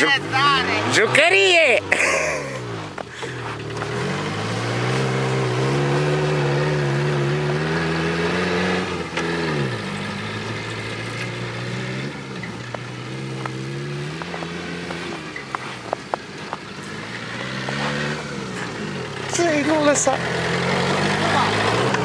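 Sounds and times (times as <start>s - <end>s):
car engine revving: 0.0s - 22.0s.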